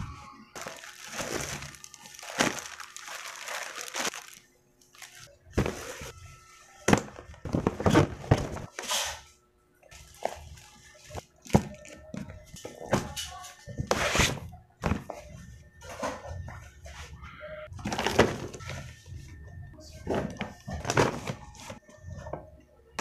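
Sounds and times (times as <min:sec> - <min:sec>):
plastic packaging crinkling: 0:00.6 - 0:06.1.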